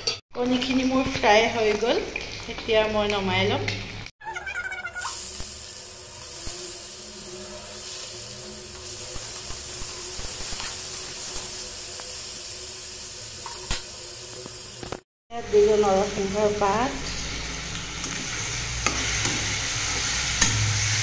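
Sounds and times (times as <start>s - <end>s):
onions sizzling in oil: 4.9s - 21.0s.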